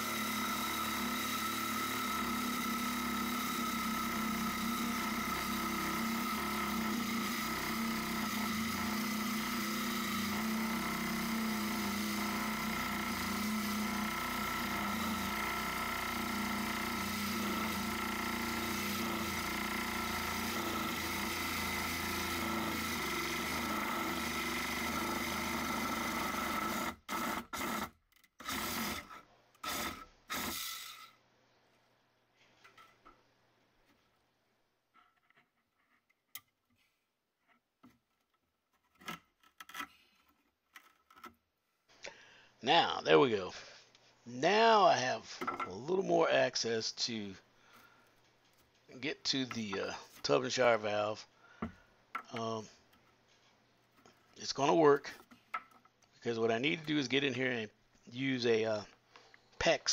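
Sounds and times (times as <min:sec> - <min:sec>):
reciprocating saw cutting wood: 0:00.0 - 0:31.2.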